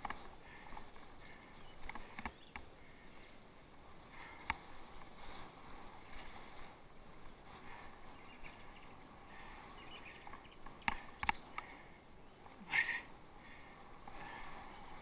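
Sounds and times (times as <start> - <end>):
bike clicks and knocks: 0.0 - 2.7, 10.2 - 11.8
bicycle rolling noise: 0.0 - 15.0.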